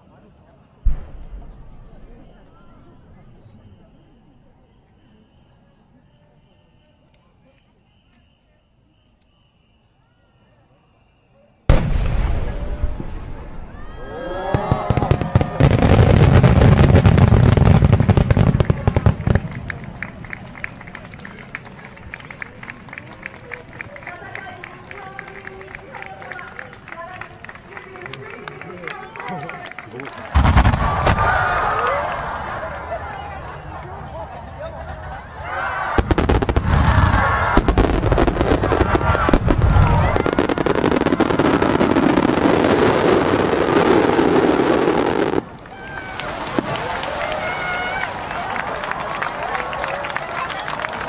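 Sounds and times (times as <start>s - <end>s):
firework pops and crackles: 14.5s - 32.2s, 35.9s - 48.1s.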